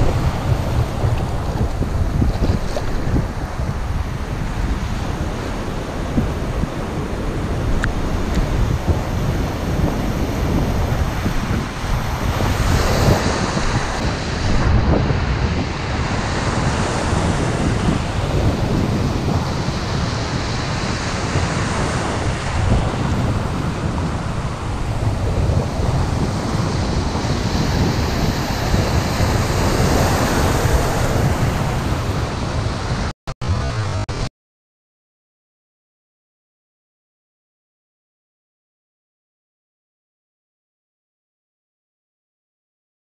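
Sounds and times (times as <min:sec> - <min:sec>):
sea waves breaking: 0:00.0 - 0:34.3
wind noise on microphone: 0:00.0 - 0:34.3.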